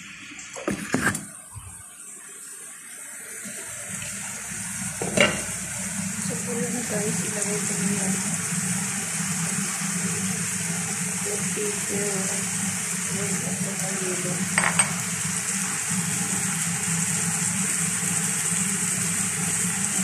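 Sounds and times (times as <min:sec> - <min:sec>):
shrimp sizzling in a frying pan: 0:04.2 - 0:20.0.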